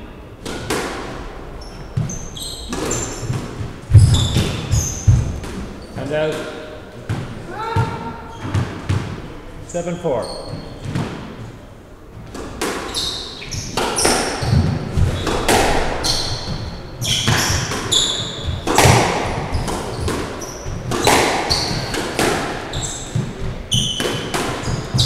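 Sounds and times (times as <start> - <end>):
squash ball smacking: 0.4 - 1.3, 2.0 - 9.3, 12.3 - 13.0, 13.6 - 25.0
trainers squeaking on wooden floor: 1.6 - 6.4, 10.0 - 11.2, 12.8 - 25.0.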